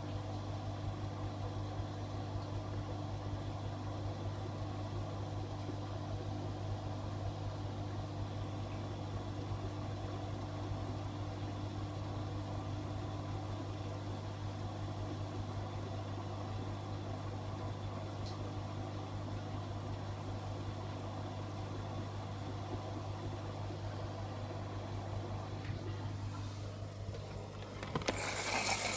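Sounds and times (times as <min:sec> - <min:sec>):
washing machine hum: 0:00.0 - 0:28.9
water pouring into drum: 0:28.0 - 0:28.9.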